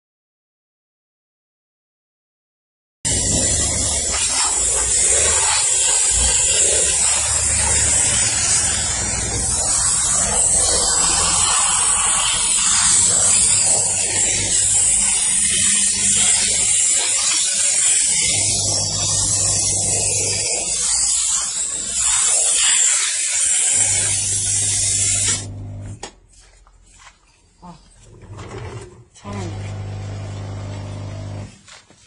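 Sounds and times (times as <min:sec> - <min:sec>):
steam nozzle hissing: 0:03.1 - 0:25.5.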